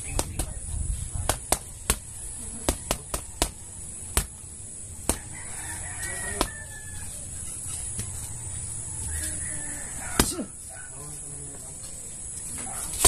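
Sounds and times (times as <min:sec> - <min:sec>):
boxing gloves hitting punching bag: 0:00.0 - 0:00.6, 0:01.2 - 0:04.4, 0:10.2 - 0:10.5
rooster crowing: 0:01.9 - 0:04.0, 0:05.1 - 0:07.6, 0:08.2 - 0:10.6.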